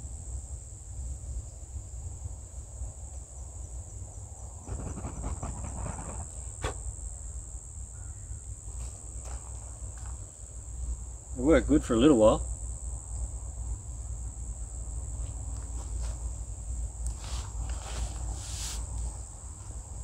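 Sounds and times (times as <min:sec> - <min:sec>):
insects chirring: 0:00.2 - 0:20.0
rustling in dry leaves: 0:17.1 - 0:20.0.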